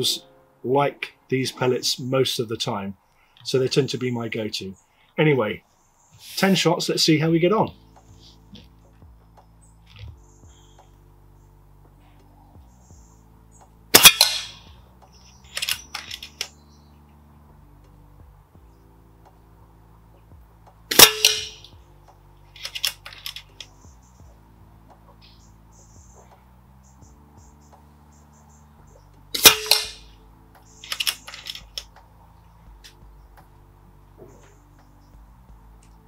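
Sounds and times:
air rifle shot crack: 13.9 - 14.7, 20.9 - 21.7, 29.4 - 30.0
rifle action clicks: 14.0 - 14.6, 15.5 - 16.5, 20.9 - 21.7, 22.6 - 23.7, 29.4 - 30.0, 30.8 - 32.0.

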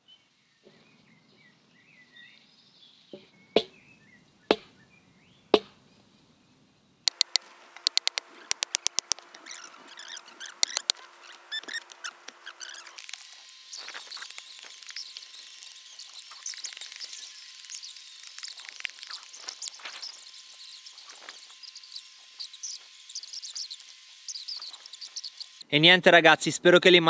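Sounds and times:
birds chirping: 0.0 - 25.9
digging tool chopping stony soil: 4.5 - 4.7
sharp knocks: 4.5 - 4.8, 5.6 - 5.8.

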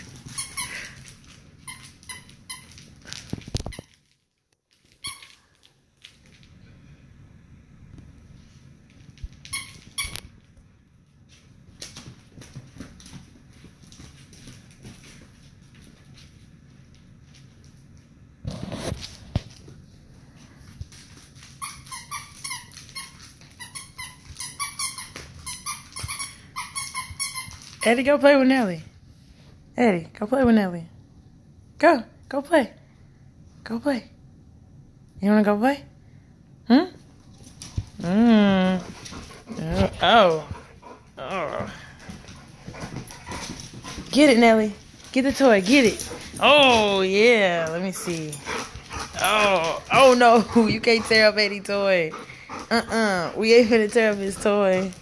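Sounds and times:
dogs squeaking at play: 21.6 - 27.8.

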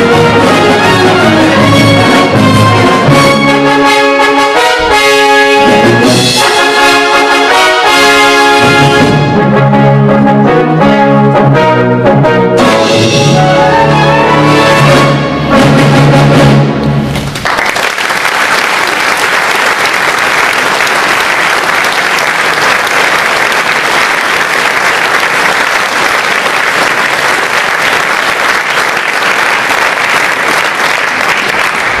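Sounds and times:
brass band chord: 0.0 - 17.0
audience applause: 17.1 - 32.0.

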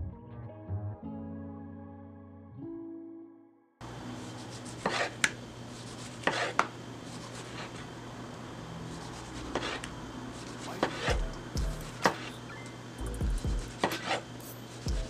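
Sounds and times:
knife slicing tomato: 4.5 - 7.8, 11.9 - 12.4, 13.7 - 14.3.

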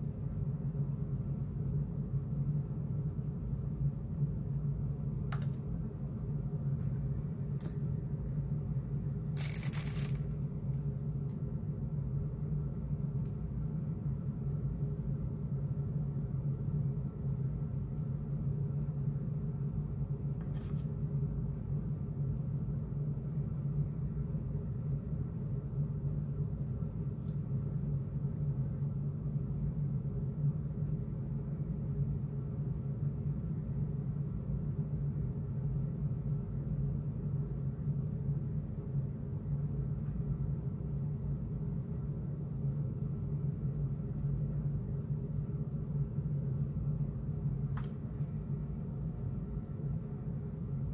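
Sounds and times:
low background hum: 0.0 - 50.9.

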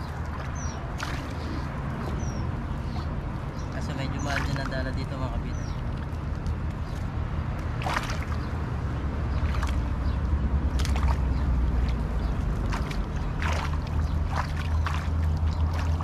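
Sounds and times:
shallow water sloshing and splashing: 0.0 - 16.0
steady low rumble: 0.0 - 16.0.

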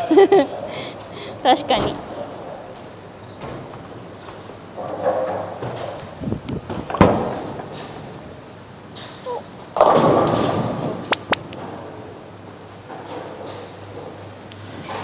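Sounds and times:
bowling ball crashing into pins: 9.8 - 11.3
sharp clacks: 11.0 - 11.6.

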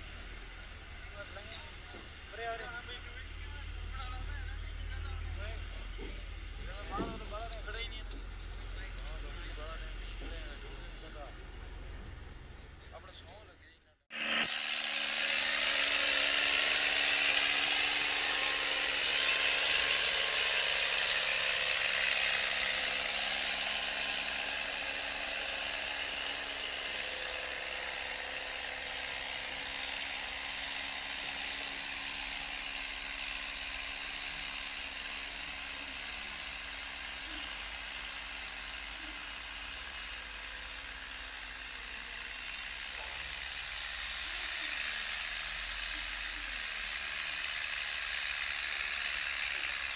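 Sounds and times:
tractor engine hum: 0.0 - 13.5.

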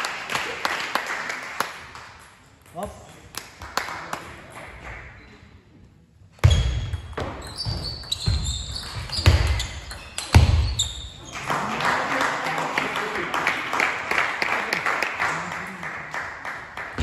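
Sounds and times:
shoes squeaking: 6.4 - 11.4.

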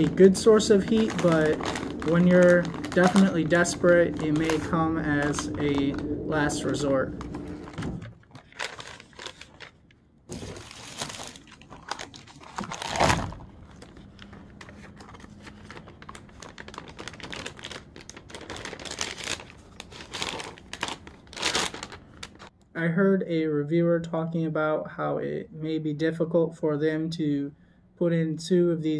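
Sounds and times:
plastic packaging crinkling: 0.0 - 22.5.

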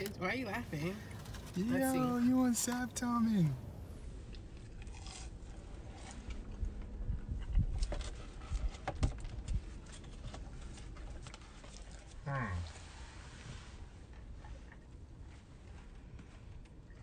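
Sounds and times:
person chewing food: 4.2 - 12.2.

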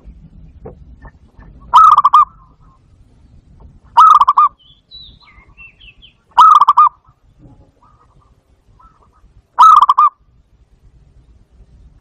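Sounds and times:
dove cooing: 1.0 - 2.8, 4.0 - 4.6, 6.4 - 10.2.

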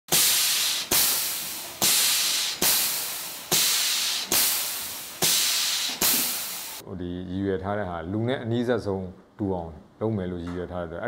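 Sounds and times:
compressed air hissing: 0.1 - 6.8
valve clicks: 0.1 - 6.8.

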